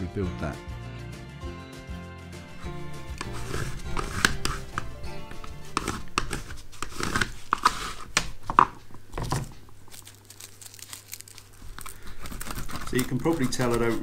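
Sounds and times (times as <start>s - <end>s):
sandpaper scratching on lead: 2.6s - 8.1s, 12.2s - 14.0s.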